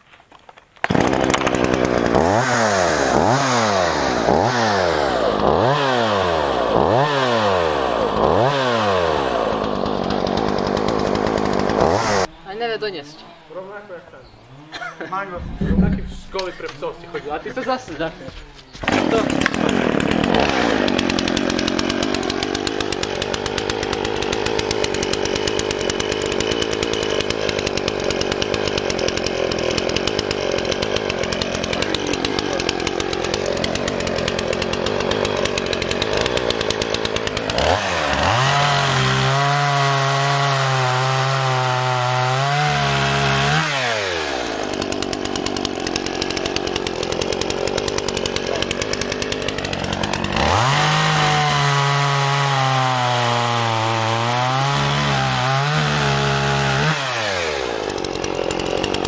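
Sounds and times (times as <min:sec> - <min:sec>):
chainsaw idling and revving: 0:00.8 - 0:59.0.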